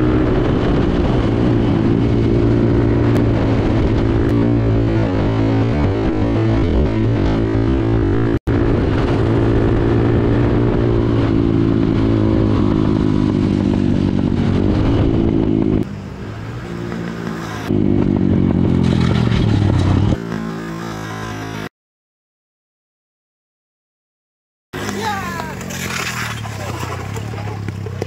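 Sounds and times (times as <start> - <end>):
scooter engines racing: 8.7 - 21.7, 24.8 - 28.0.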